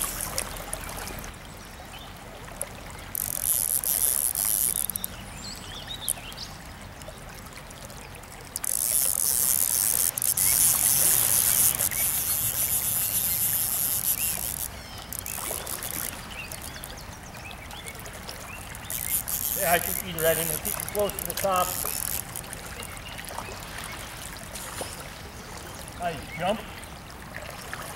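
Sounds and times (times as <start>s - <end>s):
stream flowing: 0.0s - 27.9s
fish splashing at surface: 8.2s - 25.4s.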